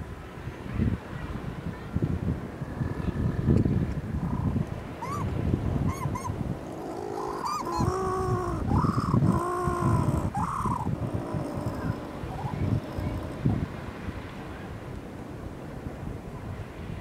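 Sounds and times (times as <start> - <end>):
wind rumble on microphone: 0.0 - 17.0
penguin chirps and braying calls: 5.9 - 13.3.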